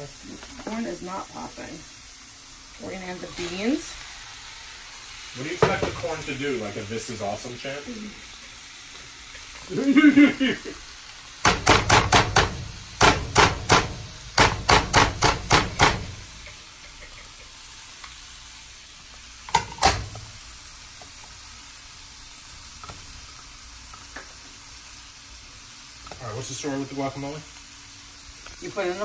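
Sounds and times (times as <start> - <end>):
pan sizzling faintly: 0.0 - 29.0
bowl knocking on skillet: 5.5 - 6.1, 11.4 - 17.5, 19.5 - 20.4.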